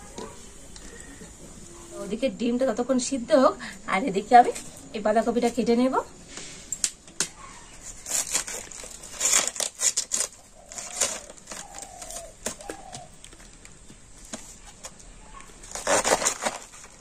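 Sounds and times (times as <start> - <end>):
cabbage leaves crunching and tearing: 7.7 - 13.2, 15.6 - 17.0.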